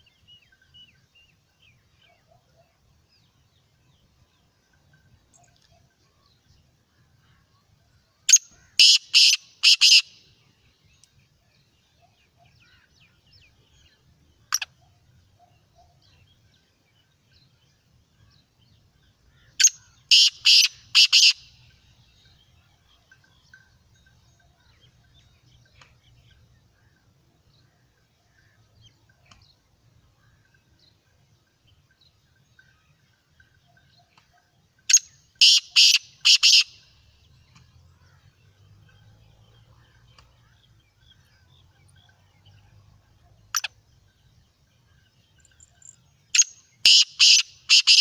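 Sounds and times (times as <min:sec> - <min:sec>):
francolin calling: 0:08.2 - 0:10.3, 0:19.3 - 0:25.2, 0:32.6 - 0:36.9, 0:45.3 - 0:48.0.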